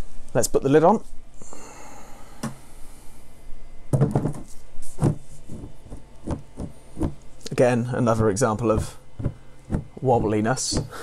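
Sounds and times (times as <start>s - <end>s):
plastic cover knocking and clattering: 3.9s - 7.2s, 8.7s - 10.9s.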